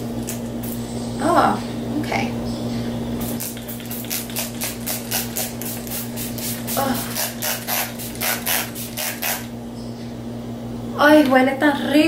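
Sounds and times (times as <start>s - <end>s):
pump spray bottle spritzing: 3.3s - 9.5s.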